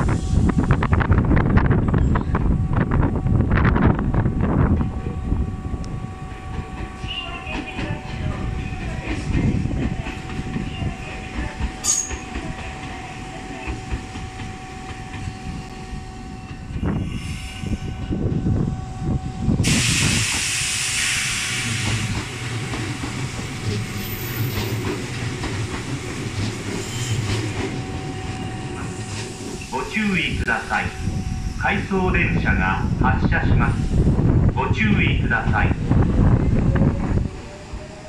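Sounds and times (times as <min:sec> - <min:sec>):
train rumbling over rails: 0:00.0 - 0:38.0
air hiss: 0:19.6 - 0:22.2.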